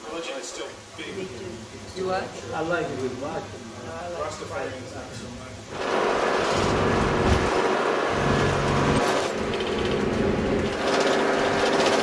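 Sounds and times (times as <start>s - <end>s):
road noise: 5.7s - 11.9s
minibus engine: 5.8s - 12.0s.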